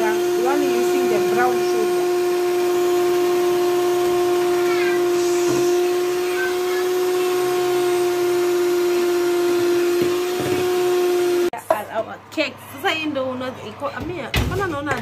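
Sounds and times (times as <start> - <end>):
electric hand mixer whining: 0.0 - 11.6.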